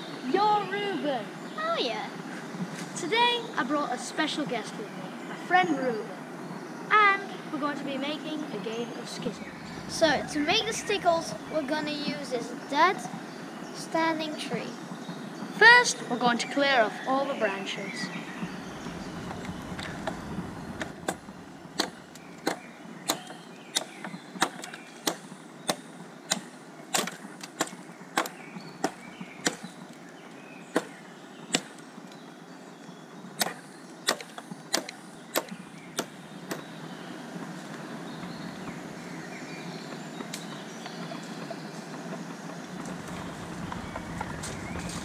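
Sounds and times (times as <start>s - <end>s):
dry branches snapping: 20.8s - 30.0s, 30.7s - 32.2s.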